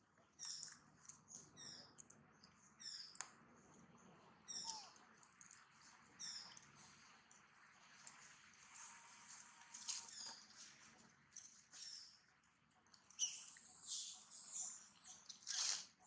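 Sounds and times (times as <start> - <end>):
high-pitched animal squeaks: 4.5 - 5.0, 13.2 - 16.0.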